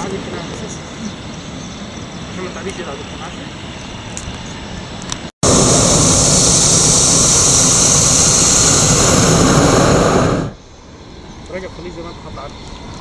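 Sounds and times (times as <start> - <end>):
propane burner blast: 5.4 - 10.6.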